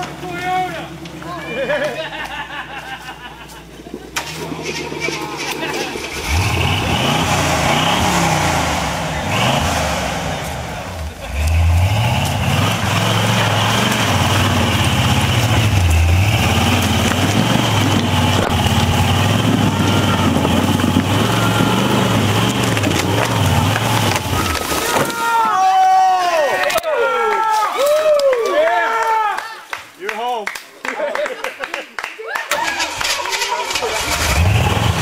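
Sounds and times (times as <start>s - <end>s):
jeep engine revving hard: 4.2s - 24.8s, 32.9s - 35.0s.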